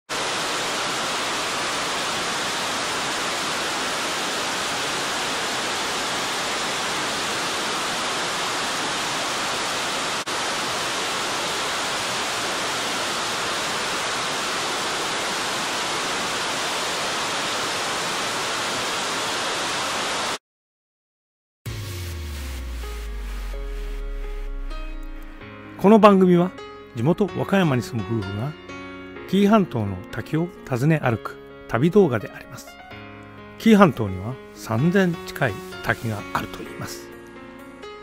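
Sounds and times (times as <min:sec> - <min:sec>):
waterfall rushing: 0:00.1 - 0:20.4, 0:34.8 - 0:36.9.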